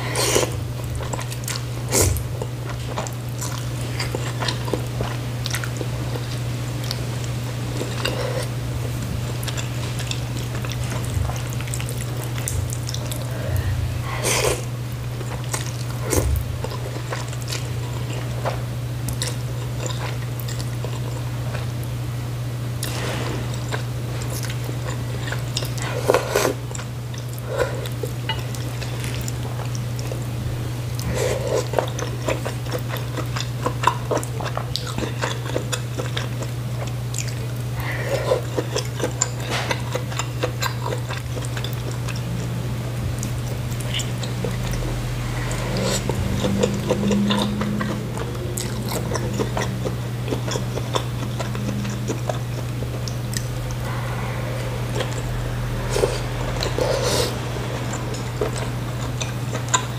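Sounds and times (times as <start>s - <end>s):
steady low hum: 0.0s - 59.9s
person slurping noodle soup: 55.9s - 57.4s.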